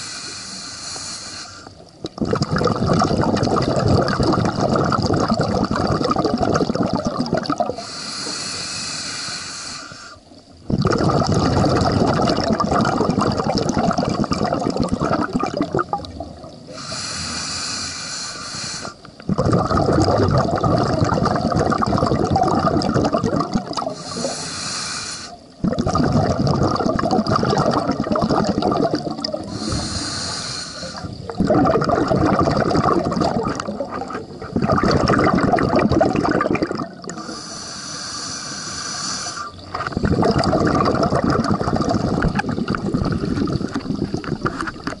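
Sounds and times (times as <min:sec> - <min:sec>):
diver breathing through regulator: 0:00.0 - 0:01.8, 0:07.8 - 0:10.3, 0:16.7 - 0:19.1, 0:23.9 - 0:25.5, 0:29.4 - 0:31.2, 0:37.0 - 0:40.2
bubbly exhalations: 0:02.0 - 0:07.9, 0:10.7 - 0:17.0, 0:19.3 - 0:24.4, 0:25.6 - 0:37.5, 0:39.4 - 0:45.0.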